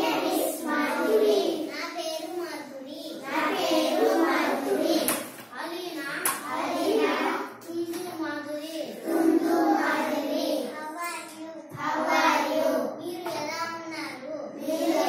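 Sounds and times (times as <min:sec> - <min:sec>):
young children singing: 0:00.0 - 0:01.7, 0:02.9 - 0:08.0, 0:08.9 - 0:10.8, 0:11.4 - 0:13.9, 0:14.5 - 0:15.0.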